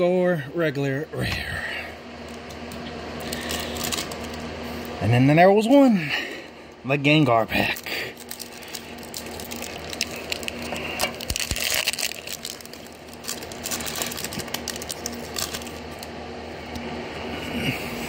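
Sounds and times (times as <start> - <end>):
foil wrapper tearing and crinkling: 2.4 - 4.4, 7.6 - 16.1.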